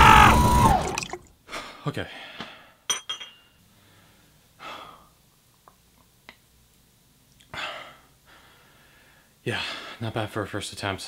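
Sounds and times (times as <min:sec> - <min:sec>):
ceramic cup clink: 0:02.9 - 0:03.5
short breath: 0:03.7 - 0:05.1, 0:07.6 - 0:10.0.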